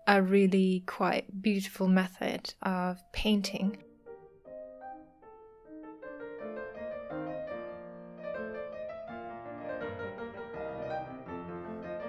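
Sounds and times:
piano music: 0:00.0 - 0:00.6, 0:03.1 - 0:12.0.

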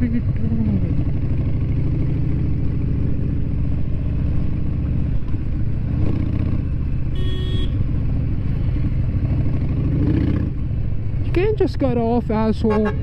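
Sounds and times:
motorcycle engine running: 0:00.0 - 0:13.0.

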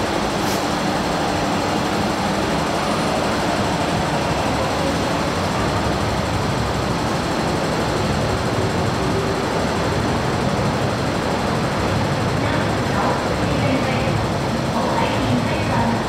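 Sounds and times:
train equipment humming and hissing: 0:00.0 - 0:16.0.

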